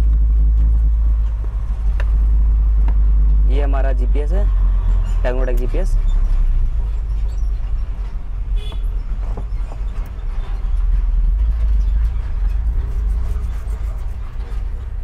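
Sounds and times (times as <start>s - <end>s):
vehicle engine rumbling: 0.0s - 15.0s
faint clicks and rustles: 6.1s - 15.0s.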